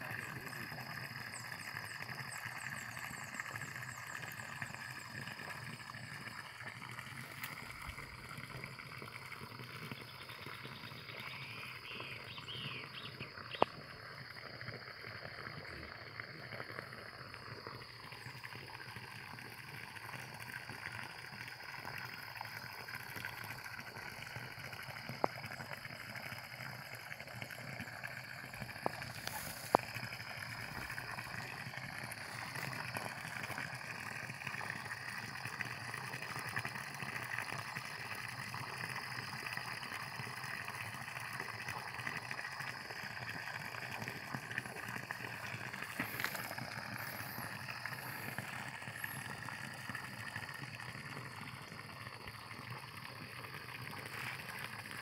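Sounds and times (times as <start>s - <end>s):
water bubbling into pond: 0.0s - 55.0s
high insect drone: 44.2s - 49.6s.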